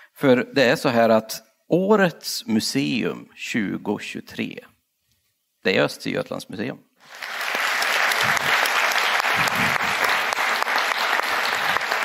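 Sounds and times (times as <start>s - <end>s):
large audience applauding: 7.0s - 12.0s.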